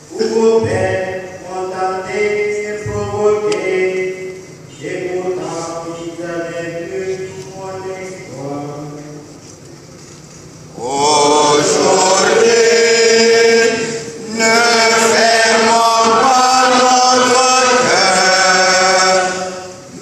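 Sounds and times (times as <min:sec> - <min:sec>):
person singing a chant: 0:10.8 - 0:20.0.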